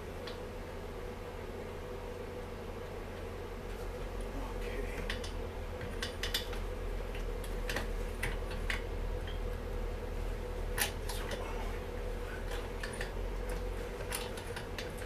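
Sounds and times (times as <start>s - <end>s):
steady low hum: 0.0s - 15.0s
clicks and clinks of parts: 12.5s - 15.0s.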